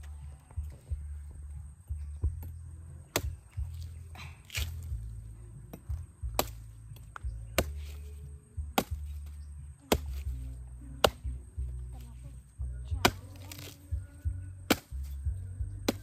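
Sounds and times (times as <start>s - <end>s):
background music: 0.0s - 16.0s
blade chopping coconut: 5.7s - 6.6s, 7.6s - 8.0s.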